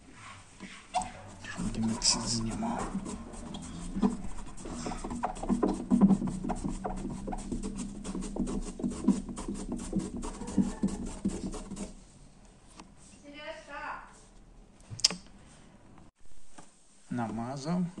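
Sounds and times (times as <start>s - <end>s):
scratchy rubbing on window glass: 0.2s - 12.0s
steady low hum: 1.1s - 12.7s.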